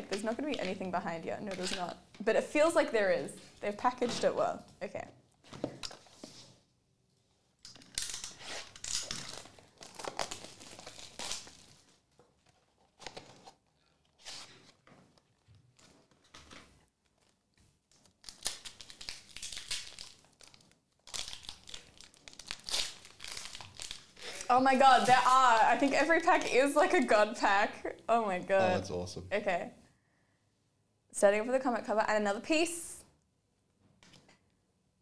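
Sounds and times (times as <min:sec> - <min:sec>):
foil wrappers crinkling and tearing: 0:07.7 - 0:26.3.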